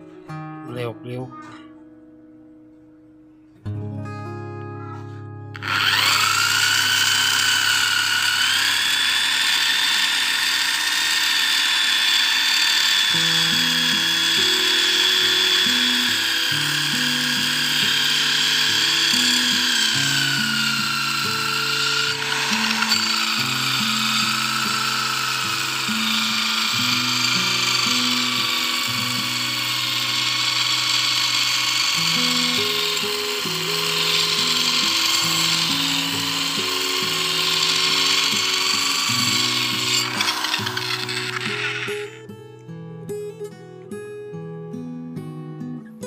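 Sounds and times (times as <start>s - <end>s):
electric drill motor whine: 5.6s - 42.2s
grinding hiss: 5.6s - 42.2s.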